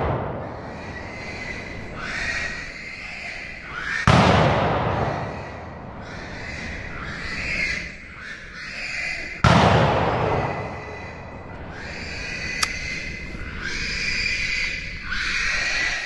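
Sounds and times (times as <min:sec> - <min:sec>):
gunshots with echo: 0:00.0 - 0:02.6, 0:04.0 - 0:07.1, 0:09.4 - 0:11.5.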